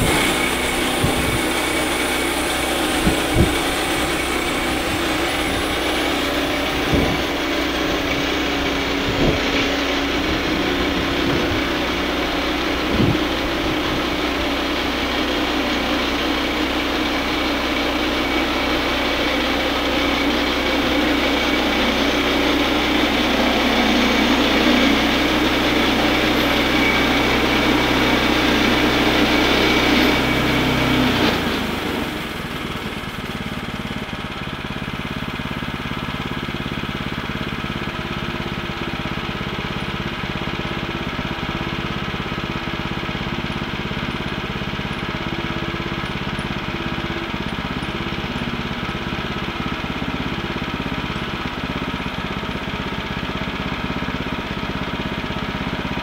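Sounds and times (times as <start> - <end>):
band saw blade cutting log: 0.0 - 34.1
gas engine running under load: 0.0 - 56.0.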